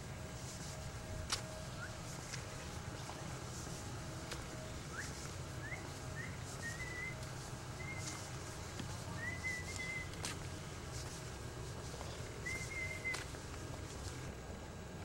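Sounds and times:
low background noise: 0:00.0 - 0:15.0
high whistled notes: 0:04.9 - 0:07.2.

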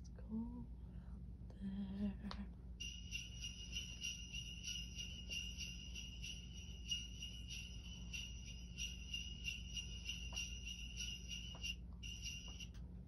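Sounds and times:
sleigh bells jingling: 0:02.8 - 0:12.7.

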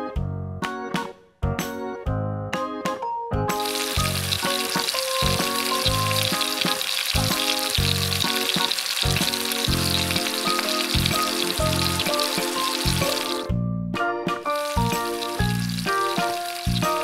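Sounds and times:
keyboard music with steady pulse: 0:00.0 - 0:17.0
frying sizzle: 0:03.5 - 0:13.5, 0:14.4 - 0:17.0.

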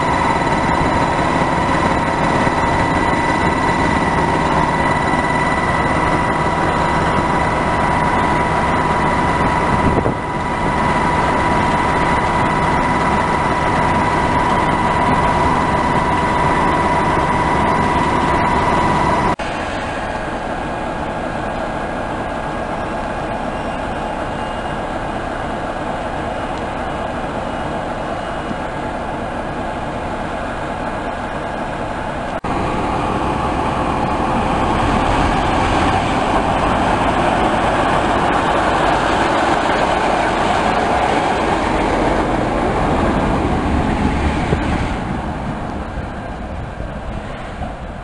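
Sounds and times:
high whine: 0:00.0 - 0:25.1, 0:31.4 - 0:48.0
diesel locomotive engine idling: 0:00.0 - 0:48.0.

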